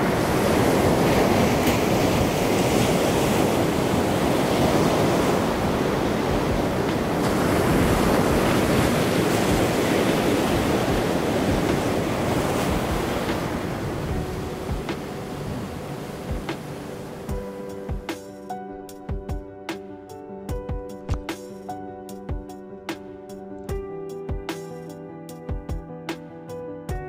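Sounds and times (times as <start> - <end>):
ocean waves breaking on beach: 0.0 - 18.2.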